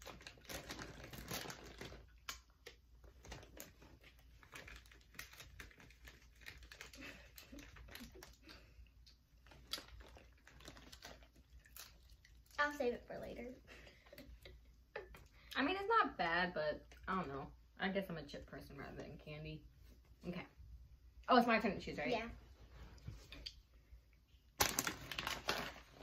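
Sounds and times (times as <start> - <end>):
plastic packaging crinkling: 0.0 - 8.7, 9.4 - 13.3, 24.6 - 26.0.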